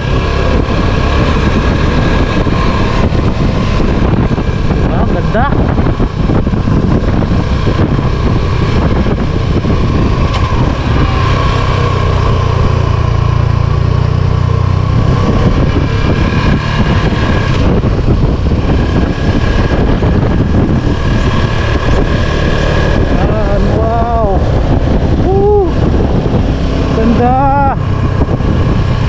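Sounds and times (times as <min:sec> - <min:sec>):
motor vehicle running: 0:00.0 - 0:29.0.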